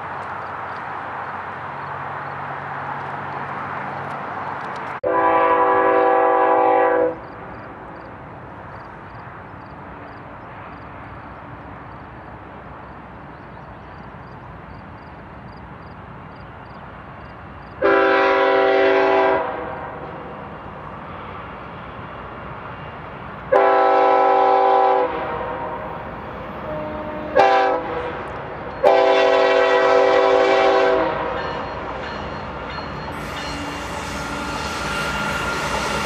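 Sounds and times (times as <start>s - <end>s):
distant train noise: 0.0s - 36.0s
locomotive air horn: 5.0s - 7.3s, 17.8s - 19.8s, 23.5s - 25.9s, 26.6s - 28.2s, 28.8s - 31.3s, 33.2s - 36.0s.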